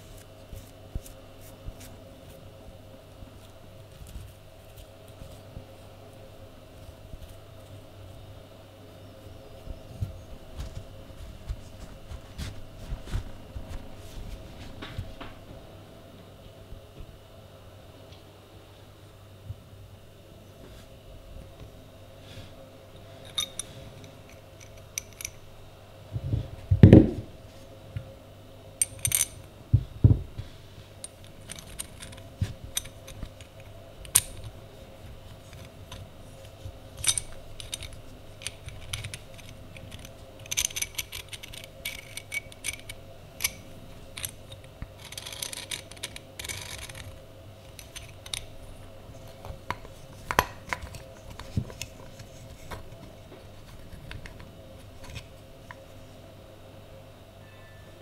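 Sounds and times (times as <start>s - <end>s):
light metallic clicks and clinks: 23.2s - 25.4s
metal parts rattling: 23.2s - 25.5s, 28.8s - 29.5s, 31.0s - 34.5s, 35.4s - 52.9s.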